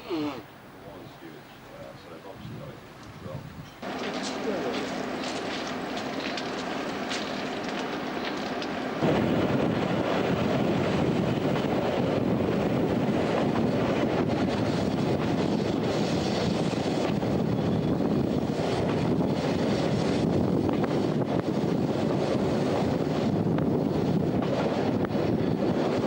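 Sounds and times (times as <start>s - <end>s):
train rumbling on track: 1.8s - 26.0s
wind buffeting microphone: 2.2s - 26.0s.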